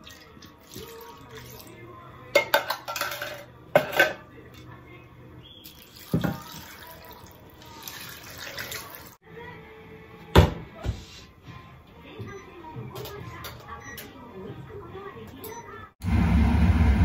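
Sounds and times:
water splashing into a pan: 5.6 - 9.2.

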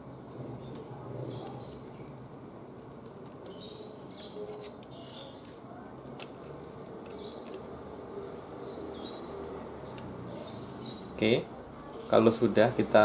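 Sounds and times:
faint bird chirps: 3.4 - 5.9.

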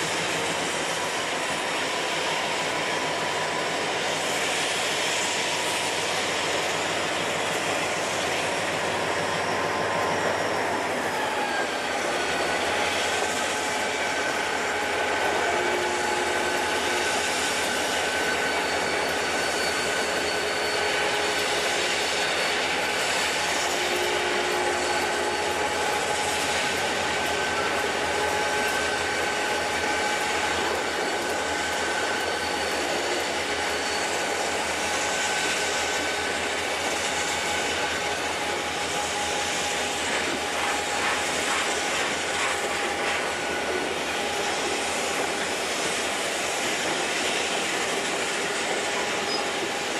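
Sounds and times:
diesel locomotives hauling train: 0.0 - 49.9
faint steady whining tones: 0.0 - 49.9
freight cars rolling on rails: 0.0 - 49.9.

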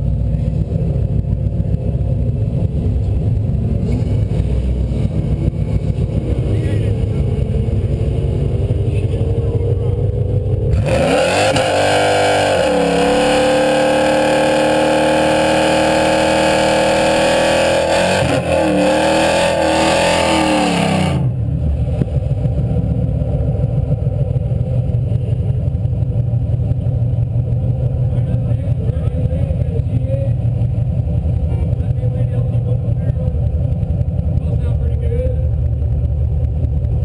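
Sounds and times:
engine idle rumble: 0.0 - 11.0, 21.2 - 37.0
race car engine revving high: 0.6 - 21.7.

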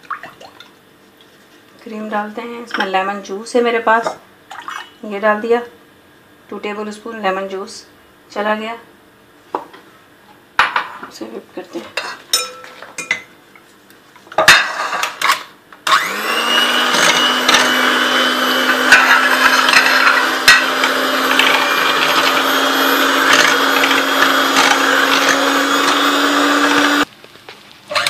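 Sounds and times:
electric hand mixer whining: 15.8 - 27.1.

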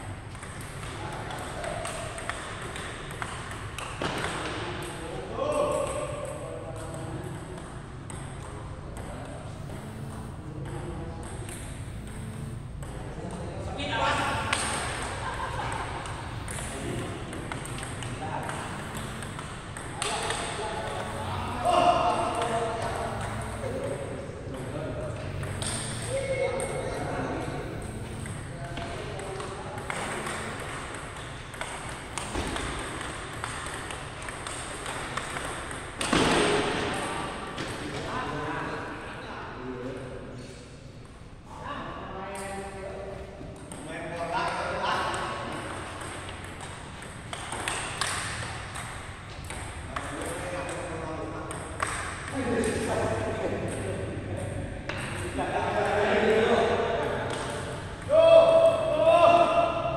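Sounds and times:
table tennis ball bouncing: 0.0 - 38.1, 43.5 - 56.0, 57.0 - 58.8
hall background noise: 0.0 - 59.9
table tennis ball clicks: 16.0 - 21.2, 22.3 - 26.1, 27.7 - 36.4.

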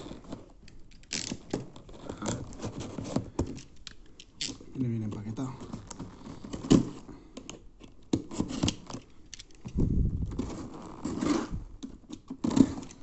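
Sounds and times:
knife cutting packing tape: 1.0 - 3.6, 12.1 - 13.0.

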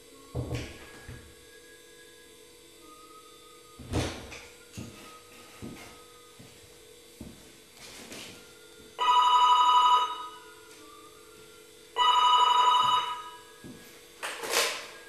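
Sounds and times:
telephone ringing: 9.0 - 10.5, 12.0 - 13.5.

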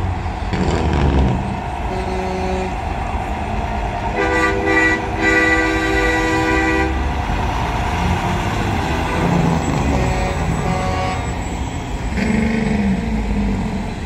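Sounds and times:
rumble of passing trucks: 0.0 - 14.0
truck chord air horn blast: 0.5 - 2.9, 4.2 - 7.1, 9.0 - 11.4.

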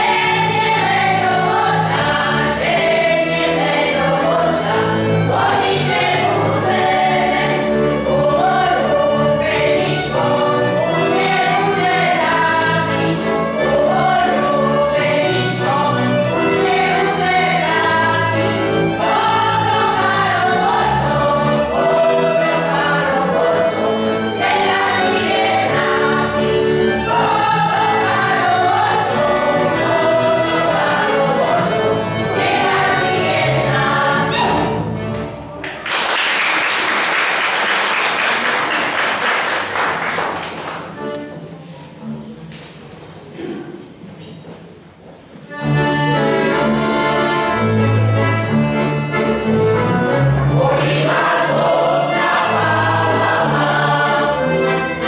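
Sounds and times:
women's choir singing folk song: 0.0 - 35.4, 45.5 - 55.0
folk band playing: 0.0 - 35.8, 40.2 - 43.4, 45.0 - 55.0
audience applauding: 35.6 - 40.9.

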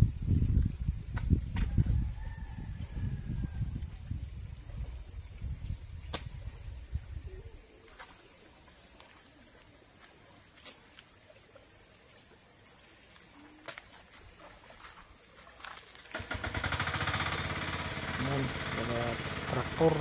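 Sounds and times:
low rumble on microphone: 0.0 - 7.6.

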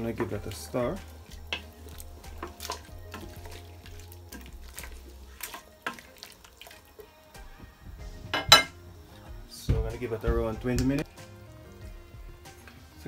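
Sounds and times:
stew sloshing: 0.0 - 8.1
spoon knocking metal pot: 8.3 - 8.8.

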